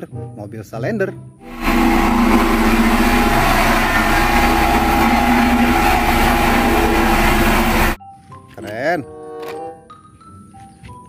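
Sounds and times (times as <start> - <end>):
diesel engine drone: 1.5 - 8.0.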